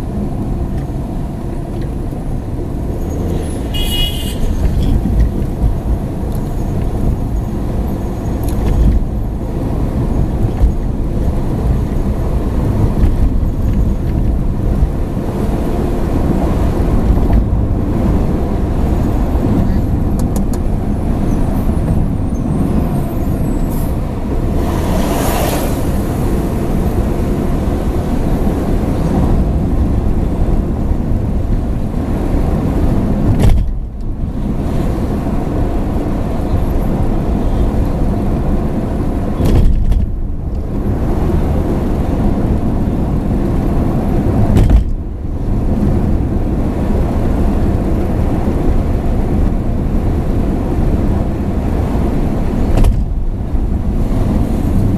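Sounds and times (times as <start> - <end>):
car engine and tyre rumble: 0.0 - 54.9.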